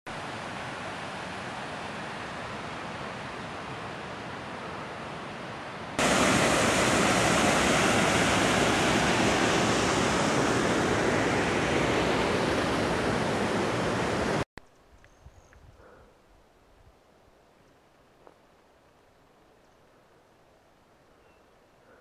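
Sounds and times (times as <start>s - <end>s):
stream rushing over rocks: 6.0s - 14.4s.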